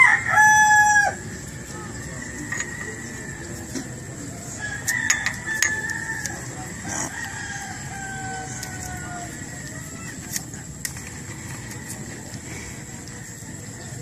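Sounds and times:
rooster crowing: 0:00.0 - 0:01.2, 0:04.5 - 0:10.2.

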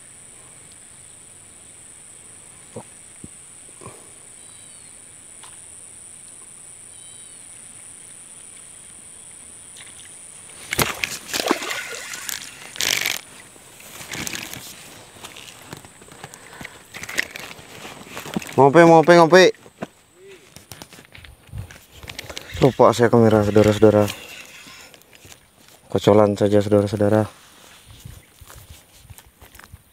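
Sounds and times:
high insect drone: 0:00.0 - 0:29.9
bird chirps: 0:04.4 - 0:05.0, 0:06.9 - 0:07.5
camera rustling and knocking: 0:12.3 - 0:18.6, 0:19.6 - 0:25.8.

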